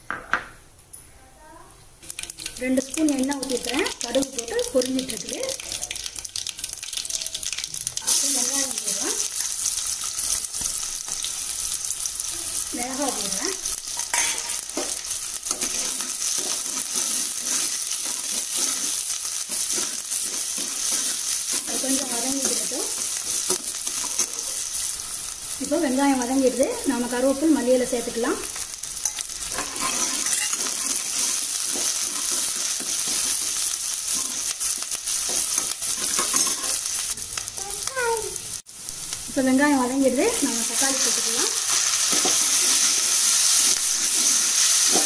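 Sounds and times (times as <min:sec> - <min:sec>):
vegetables sizzling in hot oil: 0:02.0 - 0:45.0
steel ladle scraping a pan: 0:15.5 - 0:21.8, 0:29.0 - 0:36.9, 0:41.7 - 0:45.0
metal ladle scraping a pan: 0:29.0 - 0:36.9.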